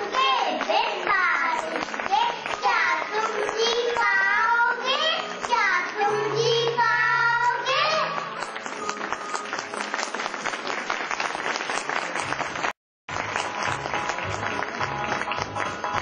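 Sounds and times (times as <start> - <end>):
audience clapping: 0.0 - 4.3, 8.2 - 16.0.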